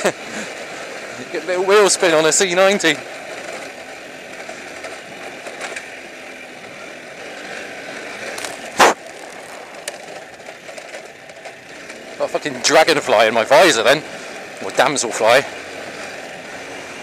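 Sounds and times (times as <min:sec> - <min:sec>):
motorcycle engine running: 0:00.0 - 0:17.0
sharp knock: 0:08.8 - 0:09.0.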